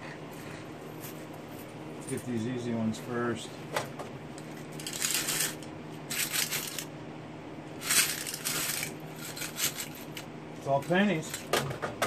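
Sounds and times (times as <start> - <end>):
low steady hum: 0.0 - 12.0
coins rattling on metal tray: 4.8 - 6.9, 7.8 - 10.2.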